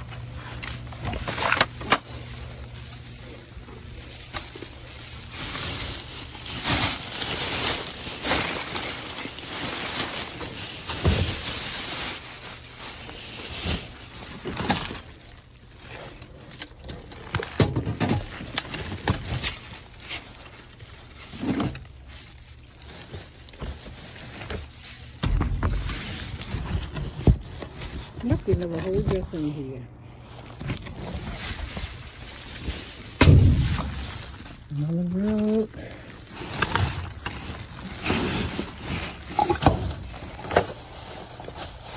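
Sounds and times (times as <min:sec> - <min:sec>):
plastic bags rustling: 0:00.0 - 0:41.9
knocks and thumps: 0:25.2 - 0:27.6.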